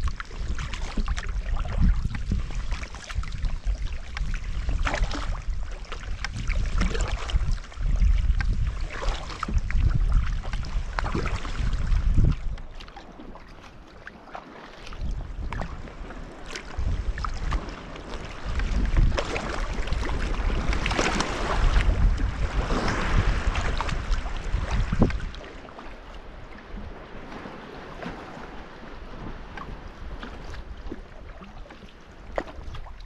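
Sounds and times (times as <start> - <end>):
wind buffeting microphone: 0.0 - 13.8, 14.8 - 33.0
paddle splashes and drips: 0.0 - 33.0
water rushing along hull: 0.0 - 33.0.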